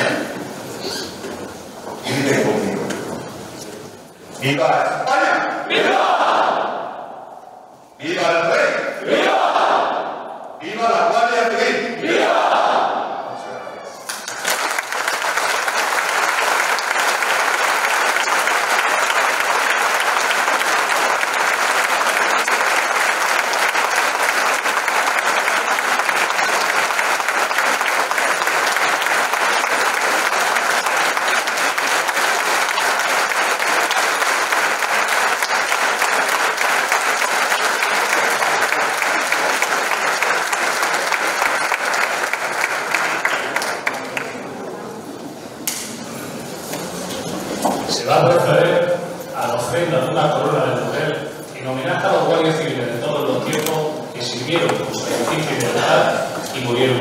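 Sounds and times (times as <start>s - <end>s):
audience applauding: 14.0s - 44.7s.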